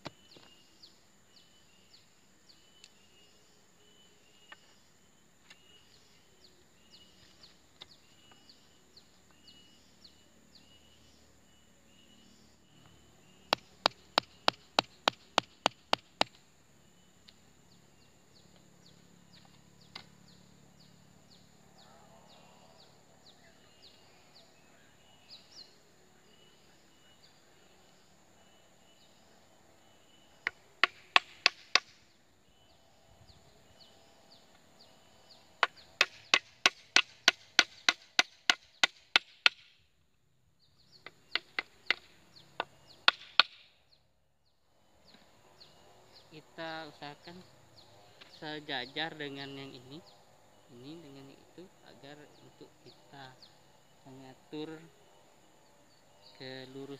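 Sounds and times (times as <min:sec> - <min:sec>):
insects chirping: 0:00.0 - 0:56.9
hammer striking nail: 0:13.5 - 0:16.4, 0:30.8 - 0:31.9, 0:35.6 - 0:39.6.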